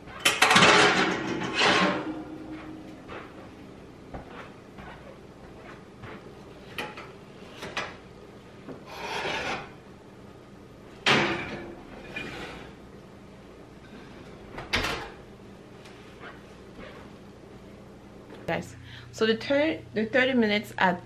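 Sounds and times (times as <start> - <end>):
pot scraping on metal rack: 0.2 - 2.9, 8.9 - 9.8, 11.5 - 12.8.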